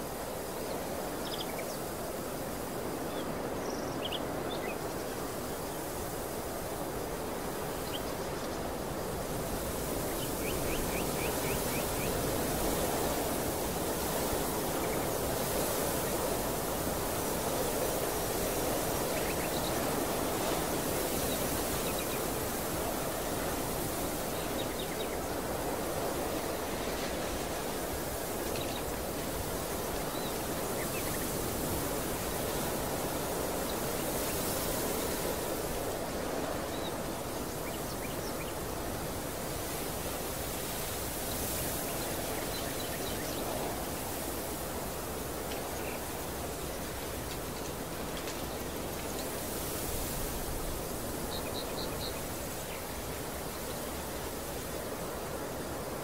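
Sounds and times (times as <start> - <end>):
rushing open-air ambience: 0.0 - 56.0.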